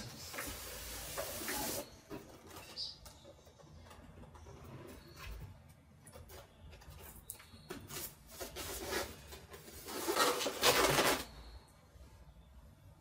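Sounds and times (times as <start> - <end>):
polystyrene foam rubbing and scraping: 0.0 - 2.0, 7.9 - 11.3.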